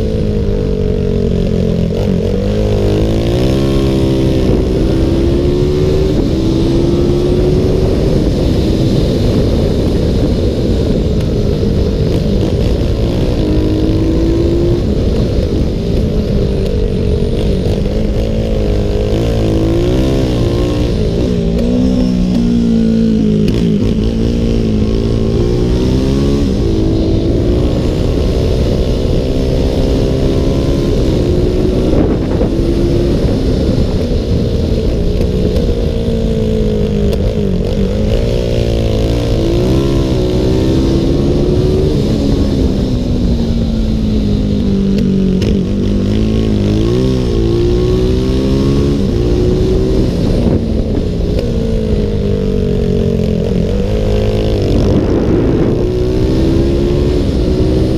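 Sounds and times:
racing motorcycle engine revving: 0.0 - 57.9
wind noise: 0.0 - 57.9.

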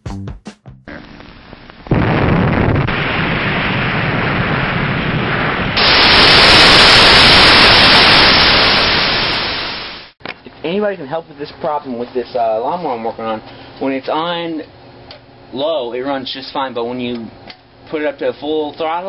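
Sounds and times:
television static hiss: 0.9 - 2.0.

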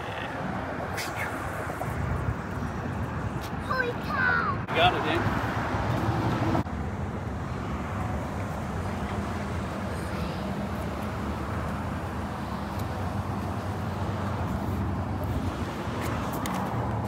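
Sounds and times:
traffic rumble: 0.0 - 17.0
faint engine hum: 6.6 - 17.0.

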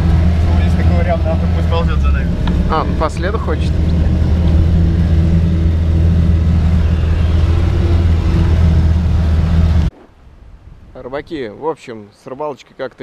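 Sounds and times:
vehicle engine droning: 0.0 - 9.9.

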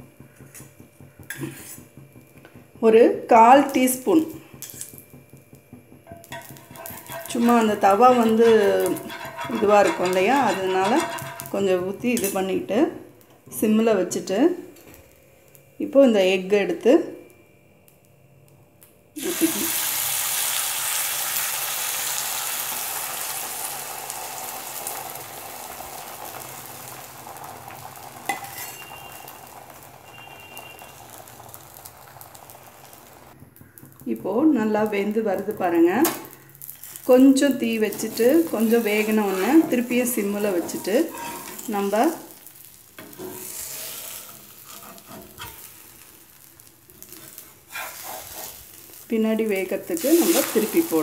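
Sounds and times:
egg batter sizzling in oil: 0.0 - 12.9, 19.2 - 51.0
steel spatula scraping: 1.3 - 2.0, 4.6 - 5.0, 6.1 - 12.5, 28.2 - 29.4, 37.8 - 42.3, 43.0 - 46.1, 47.0 - 49.0, 49.9 - 51.0.

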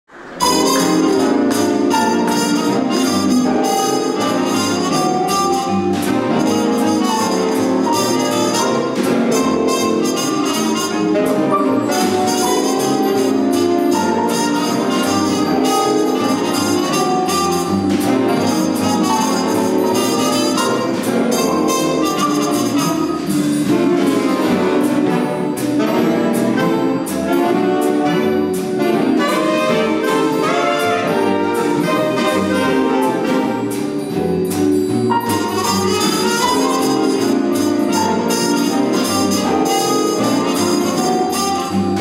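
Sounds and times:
big band playing swing: 0.1 - 42.0
muted trumpet: 0.4 - 23.4, 35.4 - 42.0.

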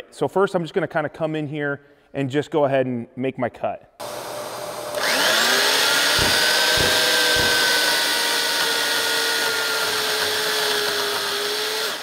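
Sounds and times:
electric chainsaw cutting wood: 4.0 - 12.0
low knocks: 6.2 - 8.0.

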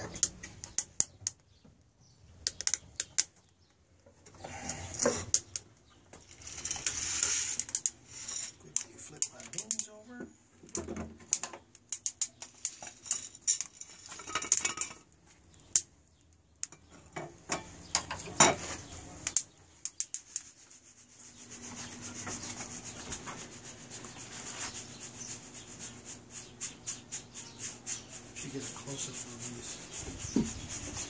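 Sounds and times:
beans clattering against metal: 4.9 - 10.0, 10.7 - 15.8
beans rustling in mesh: 6.2 - 10.0, 12.3 - 16.2.

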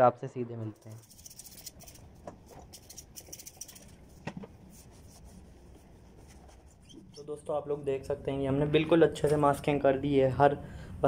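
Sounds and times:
cloth rubbing plastic: 0.8 - 7.4.

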